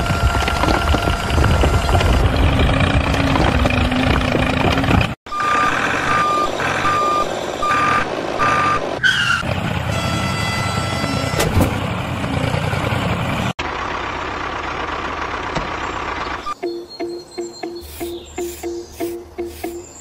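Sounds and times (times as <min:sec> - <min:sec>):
truck engine running: 0:00.0 - 0:20.0
reversing alarm beeping: 0:05.3 - 0:08.9, 0:16.4 - 0:20.0.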